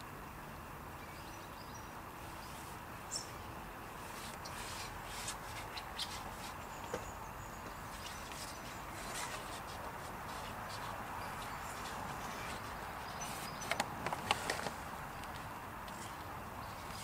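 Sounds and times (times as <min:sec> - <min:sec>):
faint bird chirps: 0:01.0 - 0:05.0.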